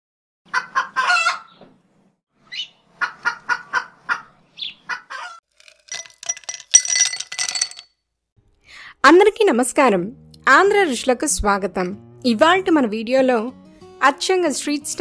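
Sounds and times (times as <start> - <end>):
ice cubes clinking into glass: 5.6 - 7.9.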